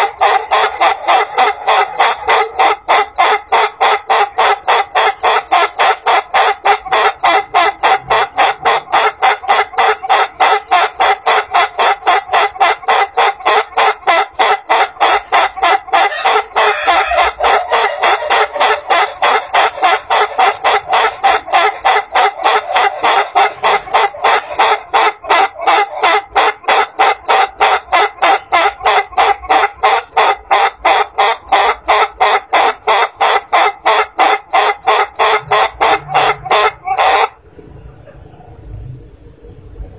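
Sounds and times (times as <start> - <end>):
rooster crowing laugh-like notes: 0.0 - 38.6.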